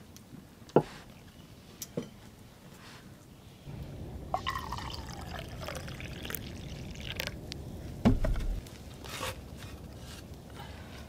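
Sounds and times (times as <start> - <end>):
liquid pouring into a cup: 4.4 - 7.4
loud thump: 8.0 - 8.6.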